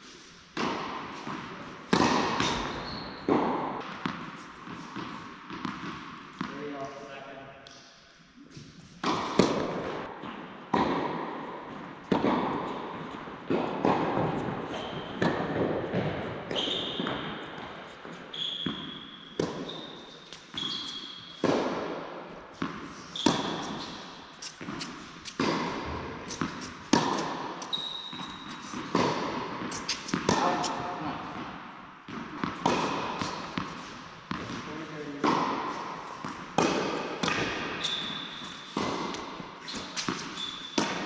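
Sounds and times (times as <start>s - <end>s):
tennis ball hit by rackets: 0.5s - 6.5s, 8.5s - 10.1s, 10.7s - 17.8s, 18.7s - 22.0s, 22.6s - 30.8s, 32.1s - 41.0s
shoes squeaking on court: 2.4s - 5.8s, 14.2s - 21.5s, 22.6s - 30.9s, 36.0s - 41.0s.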